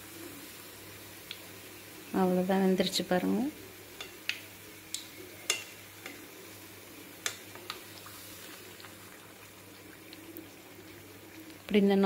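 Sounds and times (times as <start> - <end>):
hot oil sizzling: 0.0 - 12.0
metal skewer clicking on pan: 4.0 - 6.2, 7.2 - 7.8.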